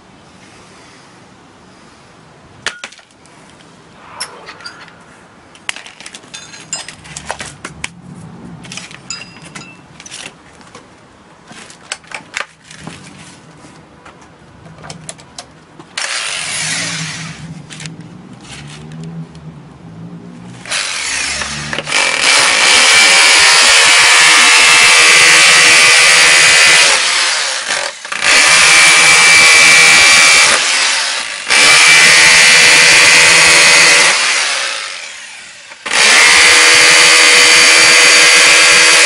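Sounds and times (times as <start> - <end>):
rotary hammer drill running: 20.7 - 39.0.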